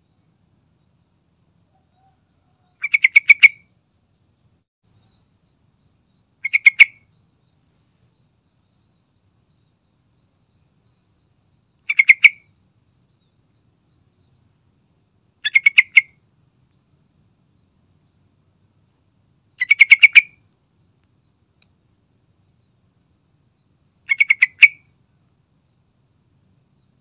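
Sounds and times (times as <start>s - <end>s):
bulbul calling: 1.8s - 3.8s, 6.4s - 7.2s, 11.6s - 12.6s, 15.4s - 16.8s, 19.6s - 20.5s, 23.7s - 25.0s.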